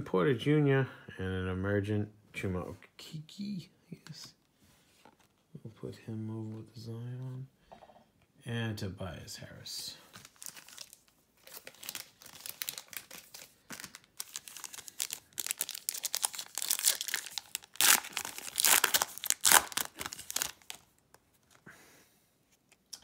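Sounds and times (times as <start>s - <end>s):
foil wrapper crinkling and tearing: 10.1s - 21.6s.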